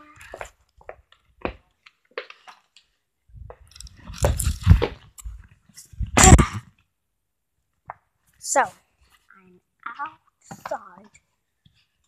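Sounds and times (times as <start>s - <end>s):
camera handling rustling and bumping: 3.5s - 5.4s.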